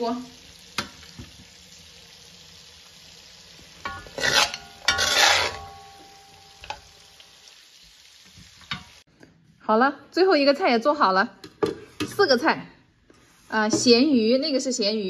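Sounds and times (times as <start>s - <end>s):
food sizzling in a wok: 0.0s - 9.1s
metal spatula scraping pan: 3.8s - 6.8s.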